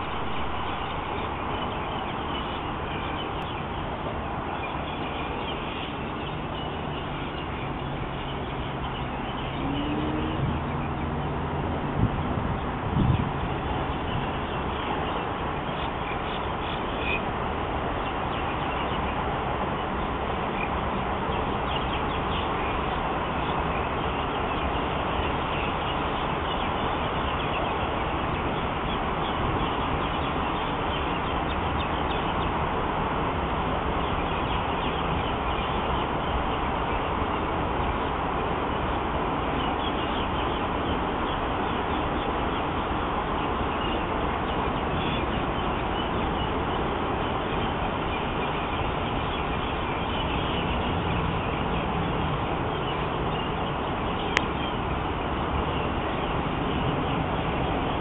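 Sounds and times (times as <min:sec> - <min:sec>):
faint bird chirps: 0:00.0 - 0:11.4
outdoor background noise: 0:00.0 - 0:58.0.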